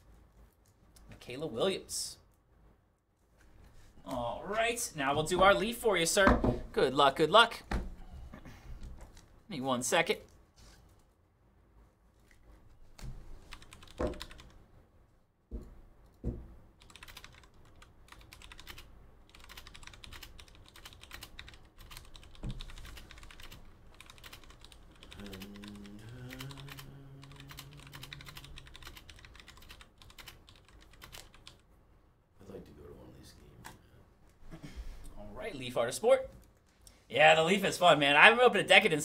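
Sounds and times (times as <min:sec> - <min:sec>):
keyboard typing: 0:13.4 - 0:14.6, 0:16.8 - 0:31.6
louder knocks: 0:15.5 - 0:16.6.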